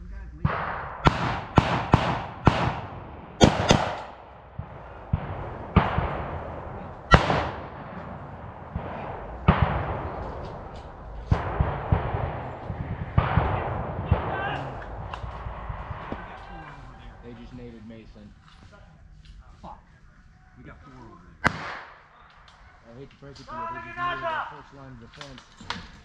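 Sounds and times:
gunshots echoing: 0.0s - 18.2s, 21.4s - 22.2s.

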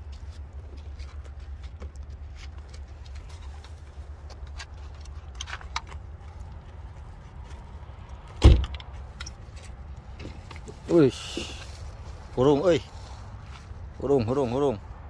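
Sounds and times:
hands clicking and rustling in box: 0.0s - 11.8s.

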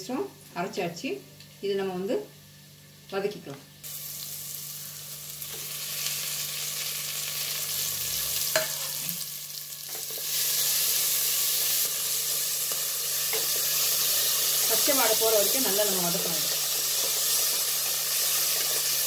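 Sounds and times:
paste sizzling in hot oil: 3.8s - 19.0s.

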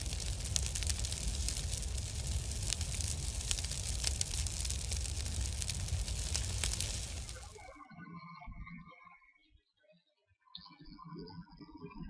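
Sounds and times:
fire rumbling and crackling: 0.0s - 7.7s.

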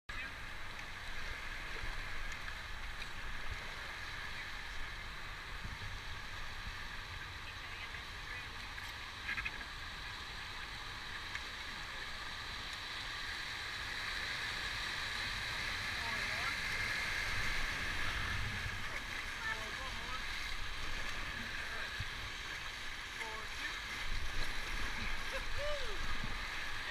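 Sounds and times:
river rapids rushing: 13.4s - 26.9s.

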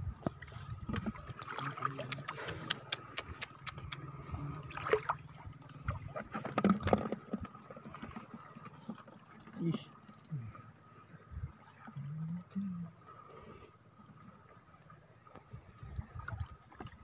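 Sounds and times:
water sloshing and splashing: 0.0s - 17.0s
sharp clicks: 2.1s - 4.0s.

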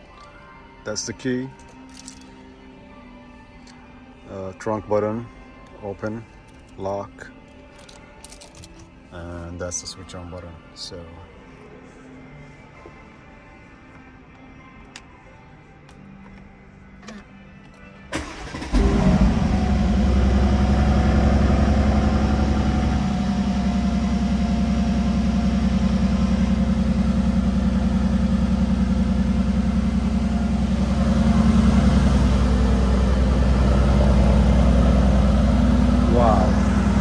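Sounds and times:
car engine starting and idling: 16.2s - 37.0s.

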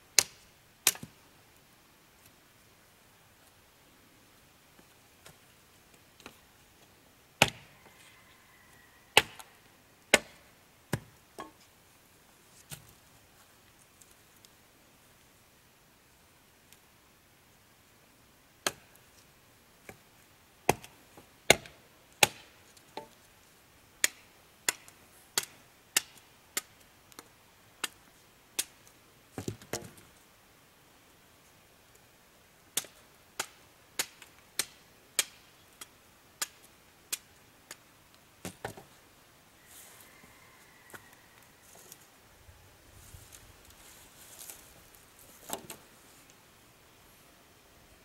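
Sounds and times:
blade chopping wood: 21.5s - 22.5s.

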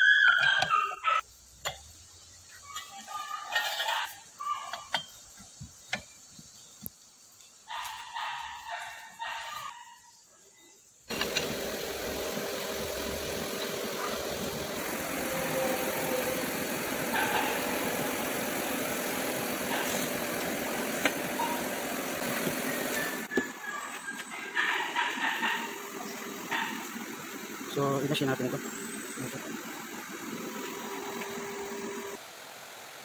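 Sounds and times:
loud steady machine noise: 11.1s - 23.3s, 25.0s - 32.2s.

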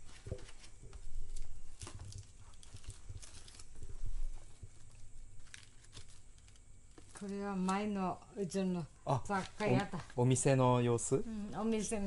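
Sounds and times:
paper rustling: 0.0s - 7.4s, 9.3s - 10.4s.

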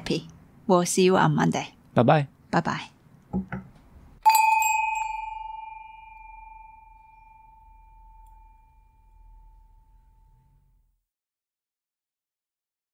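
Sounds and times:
small bell ringing: 4.2s - 10.4s.

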